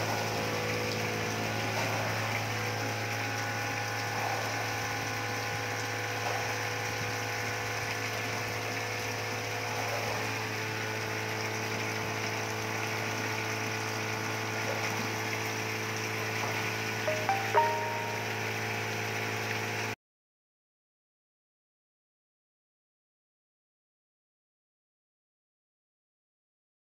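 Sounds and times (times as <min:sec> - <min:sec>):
water churning in tank: 0:00.0 - 0:19.9
short pitched notes: 0:17.1 - 0:18.6.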